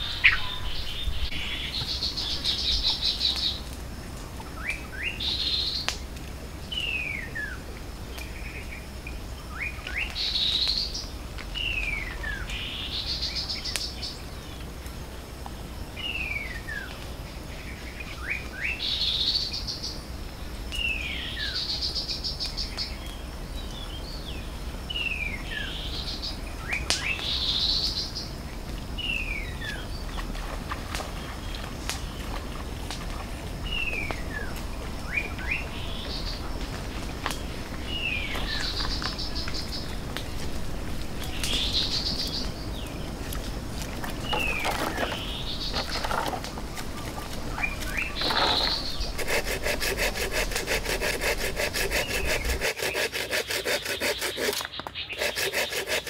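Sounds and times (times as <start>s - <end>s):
bird rapid trilling: 47.6s - 56.0s.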